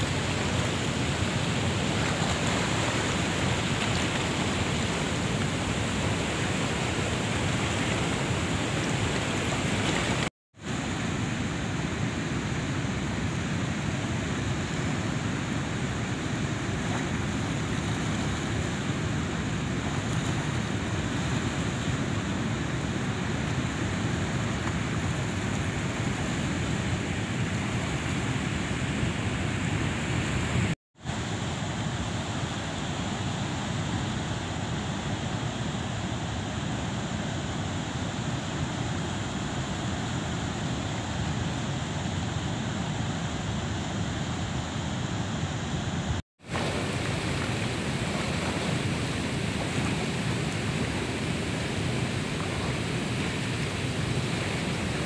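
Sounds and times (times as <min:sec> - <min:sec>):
fast-flowing river water rushing: 0:00.0 - 0:28.3, 0:45.3 - 0:55.0.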